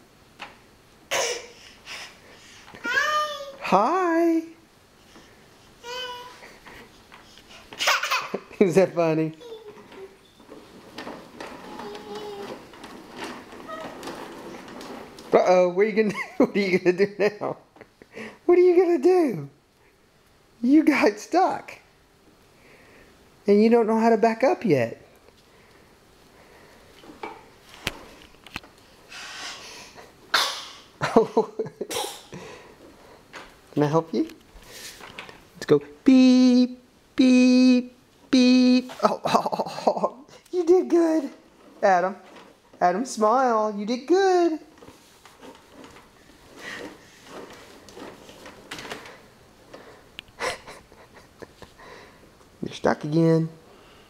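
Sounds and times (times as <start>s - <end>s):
toy car rattling over tiles: 7.1s - 16.1s, 40.6s - 50.0s.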